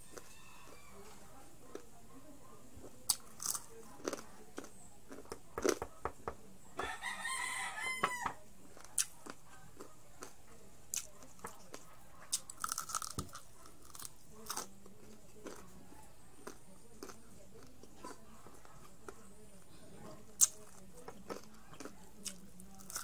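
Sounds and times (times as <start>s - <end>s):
rooster crowing: 0.0s - 1.2s, 6.8s - 8.4s
crunching crispy food: 3.1s - 5.8s, 10.9s - 15.8s, 16.4s - 19.2s, 20.4s - 23.0s.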